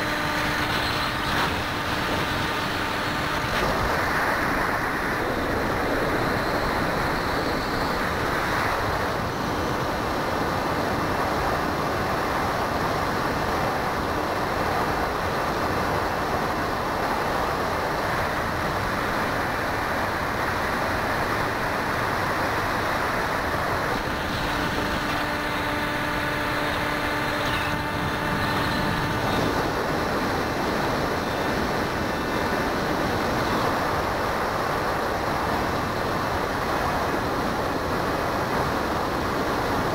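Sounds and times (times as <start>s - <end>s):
motor humming: 0.0s - 9.0s, 20.5s - 33.6s
propeller noise: 0.0s - 39.9s.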